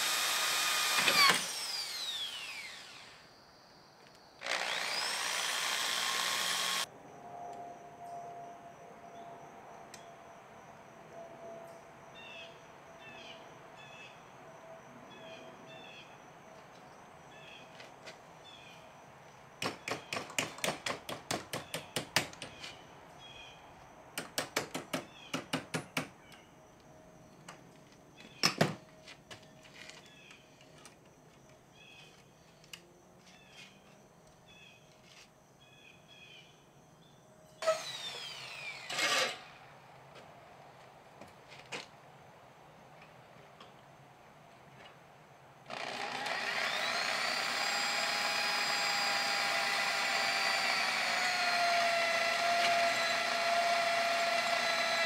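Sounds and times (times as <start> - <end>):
electric drill running: 0.0 - 3.2, 4.4 - 6.9, 37.6 - 39.5, 45.7 - 55.0.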